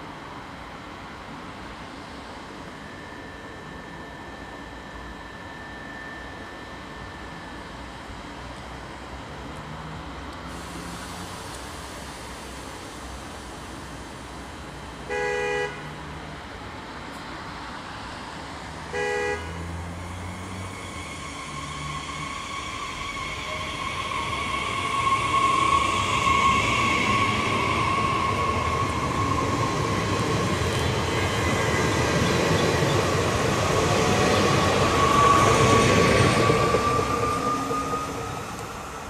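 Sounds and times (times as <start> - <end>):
steady train whine: 0.0 - 39.0
train horn toot: 15.0 - 16.0, 18.9 - 19.8
train wheels rumbling: 18.9 - 39.0.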